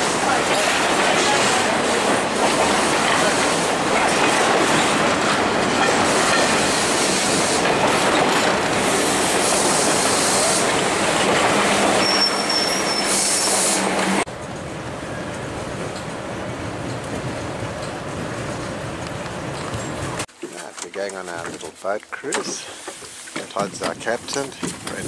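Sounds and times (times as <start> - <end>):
train wheels clacking over rail joints: 0.0 - 12.8, 22.3 - 25.0
high wheel squeal: 11.8 - 14.0.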